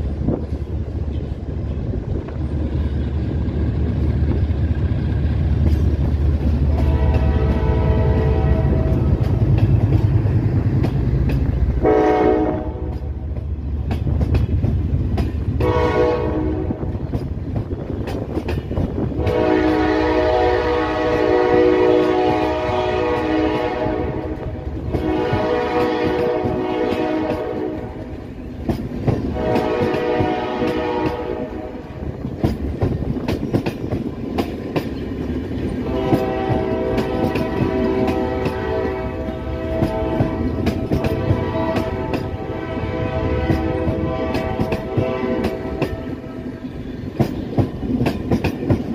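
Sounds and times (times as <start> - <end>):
diesel locomotive rumble: 0.0 - 48.9
train wheels clicking over rail joints: 0.0 - 48.9
multi-tone train horn: 6.5 - 9.4, 11.8 - 13.2, 15.5 - 17.0, 19.0 - 28.3, 29.2 - 32.2, 35.8 - 46.7.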